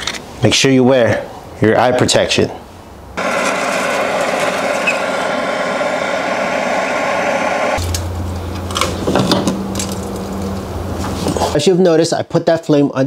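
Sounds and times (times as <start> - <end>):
propane torch hissing: 3.2 - 7.8
low hum: 3.2 - 11.3.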